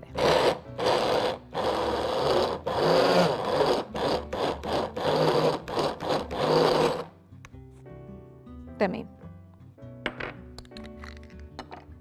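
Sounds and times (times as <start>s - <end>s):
stick blender grinding in pulses: 0.0s - 7.1s.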